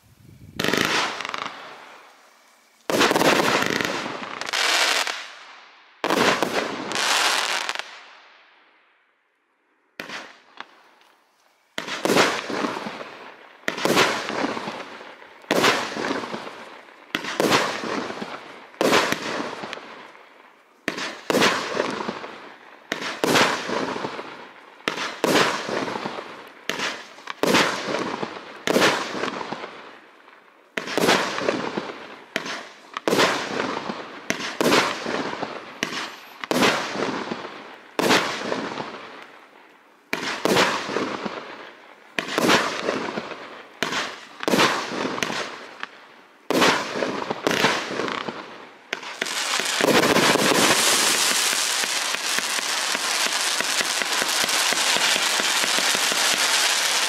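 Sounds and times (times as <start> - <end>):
firework shells banging: 49.0 - 57.0.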